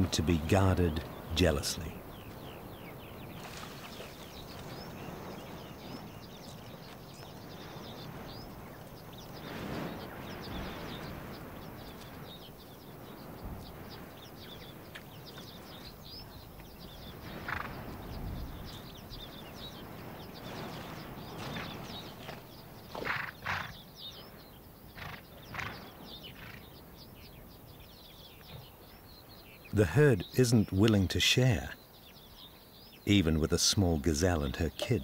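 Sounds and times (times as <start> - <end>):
horses feeding in grass: 0.0 - 27.3
small birds chirping: 0.0 - 35.0.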